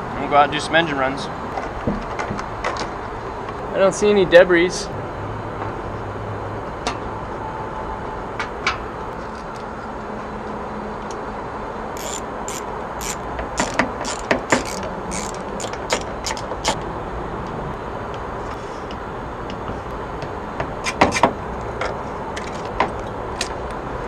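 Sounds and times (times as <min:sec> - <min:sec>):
background hum: 0:11.9 - 0:23.8
ratchet clicking: 0:12.0 - 0:16.8.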